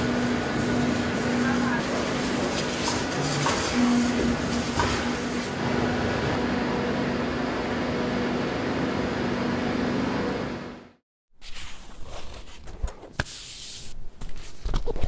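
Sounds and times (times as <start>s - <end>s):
steady machine hum: 0.0s - 11.0s.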